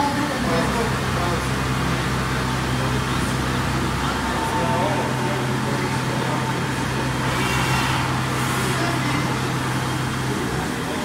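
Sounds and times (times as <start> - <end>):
machine hum: 0.4 - 11.0.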